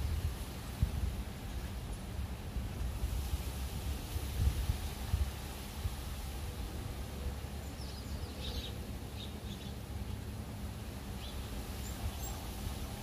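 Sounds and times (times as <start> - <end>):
hummingbirds chirping: 6.2 - 13.0.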